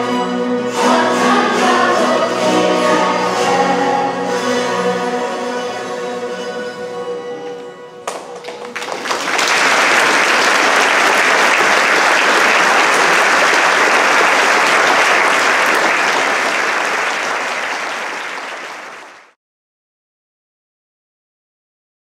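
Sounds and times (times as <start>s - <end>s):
audience applauding: 8.0s - 19.4s.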